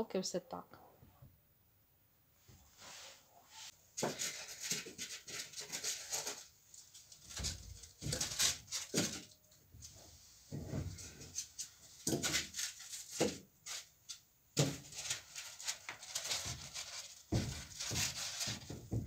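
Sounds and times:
polystyrene foam rubbing and squeaking: 2.8s - 9.4s, 10.9s - 14.0s, 14.7s - 19.0s
foam knocking on wooden boards: 17.2s - 19.0s.

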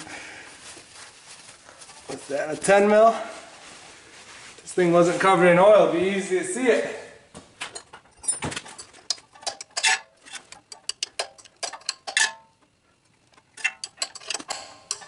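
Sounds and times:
wrench clinking on a bolt: 7.8s - 12.6s, 13.6s - 15.0s.

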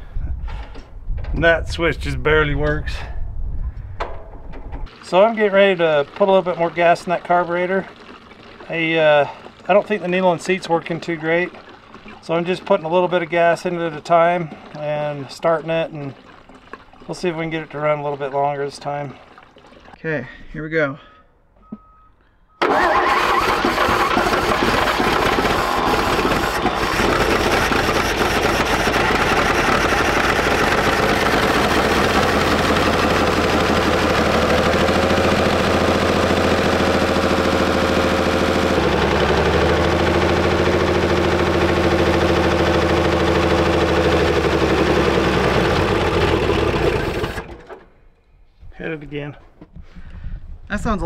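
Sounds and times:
truck engine starting and running: 21.4s - 48.0s.

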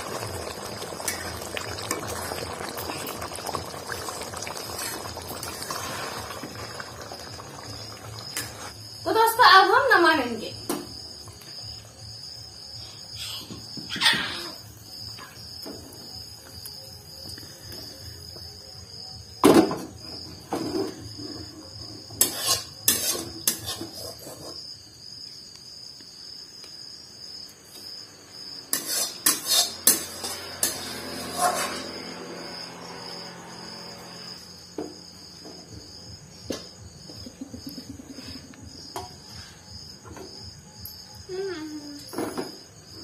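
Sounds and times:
spatula scraping metal pan: 22.1s - 24.6s, 28.7s - 32.1s.

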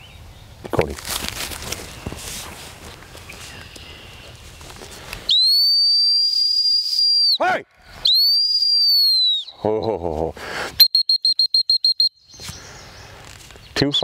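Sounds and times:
dog whistle blasts: 5.3s - 7.4s, 8.0s - 9.4s, 10.8s - 12.2s.

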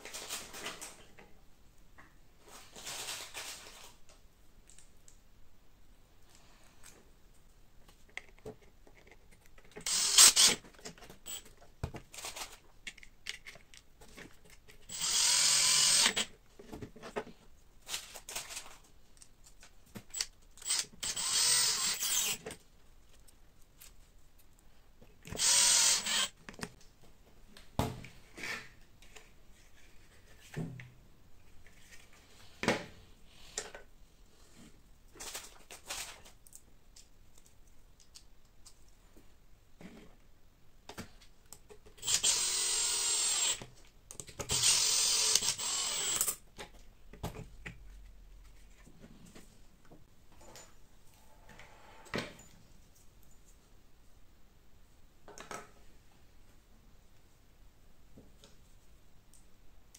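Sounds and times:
cordless drill driving screws: 9.8s - 10.6s, 14.9s - 16.3s, 20.6s - 22.4s, 25.3s - 26.4s, 42.0s - 43.6s, 44.5s - 46.3s
plastic parts clicking: 12.2s - 14.9s.

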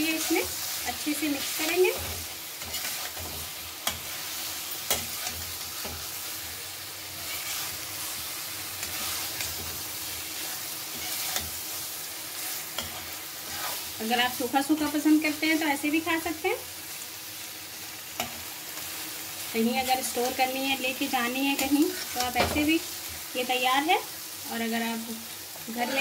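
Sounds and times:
metal spatula stirring in pan: 0.0s - 15.7s
frying sizzle: 0.0s - 26.0s.

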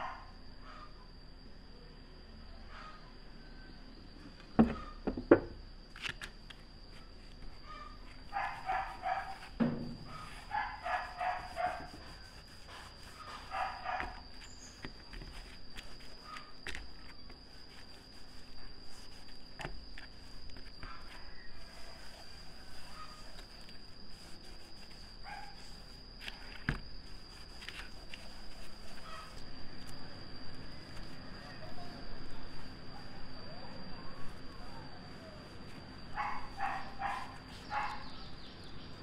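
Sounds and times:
dog barking: 0.0s - 0.8s, 7.7s - 9.4s, 10.1s - 11.9s, 13.5s - 14.2s, 25.2s - 25.6s, 36.1s - 38.1s.

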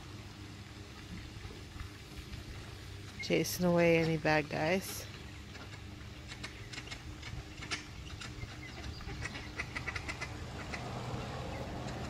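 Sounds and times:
low steady hum: 0.0s - 12.0s
ducks calling softly: 4.5s - 12.0s.

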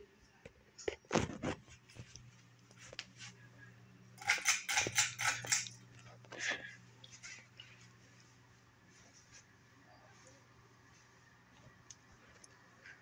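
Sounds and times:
ceiling fan motor hum: 0.0s - 13.0s
irregular clicks and rattles: 4.2s - 7.4s.

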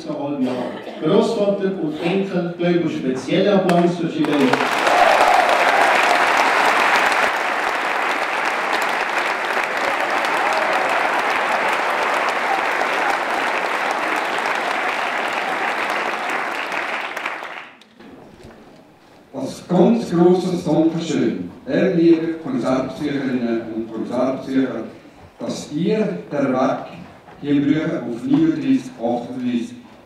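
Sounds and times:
audience applauding: 4.2s - 17.8s.

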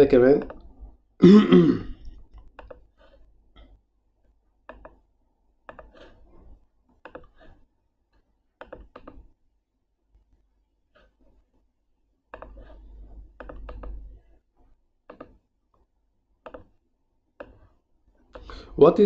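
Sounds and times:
computer mouse clicking: 0.3s - 0.8s, 2.1s - 3.3s, 4.7s - 5.0s, 5.7s - 6.4s, 7.0s - 9.4s, 12.3s - 14.3s, 15.1s - 15.4s, 16.4s - 16.8s, 17.4s - 17.7s.

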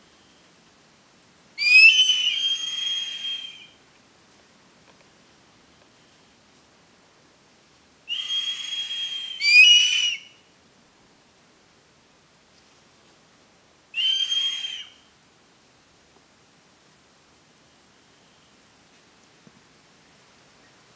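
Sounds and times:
eagles whistled cries: 1.6s - 3.8s, 8.1s - 10.4s, 14.0s - 15.0s.

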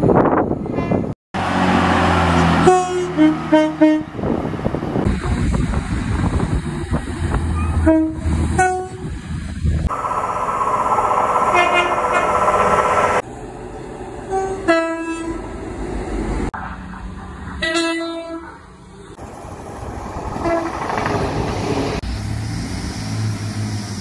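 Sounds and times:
rail running noise: 0.0s - 24.0s
two-tone train horns: 0.7s - 4.2s, 7.6s - 9.1s, 11.5s - 12.4s, 14.3s - 15.5s, 17.6s - 18.6s, 20.4s - 20.8s.

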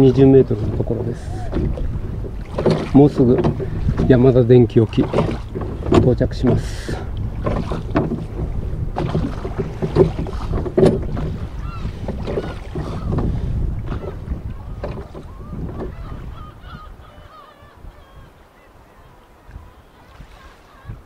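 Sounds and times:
oars knocking in oarlocks: 0.0s - 16.4s
wind rumble: 0.0s - 18.4s
water: 0.0s - 21.0s
faint bird calls: 11.5s - 13.2s, 13.9s - 21.0s.

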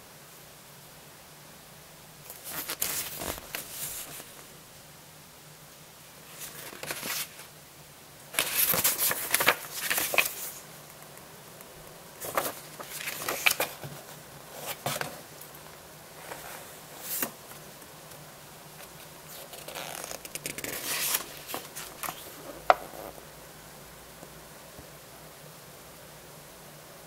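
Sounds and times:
paper pages rustling: 2.3s - 4.5s, 6.2s - 7.5s, 8.4s - 10.6s, 12.2s - 15.3s, 16.2s - 18.2s, 18.8s - 22.9s.

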